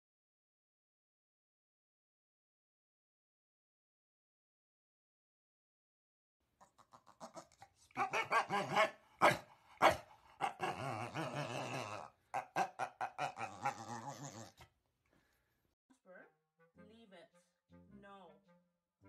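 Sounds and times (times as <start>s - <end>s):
dog grumbling: 6.6s - 14.7s
dog barking: 8.0s - 11.1s, 12.3s - 13.9s.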